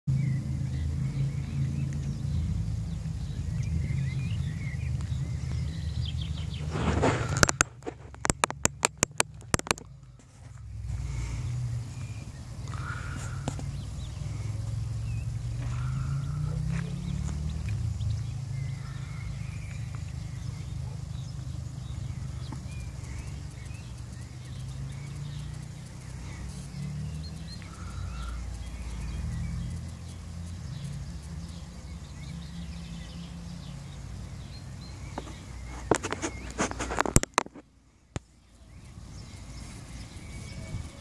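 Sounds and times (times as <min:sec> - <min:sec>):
sharp clicks or knocks: 0:06.9 - 0:10.0
faint bird chirps: 0:09.5 - 0:41.0
wind buffeting microphone: 0:39.1 - 0:41.0.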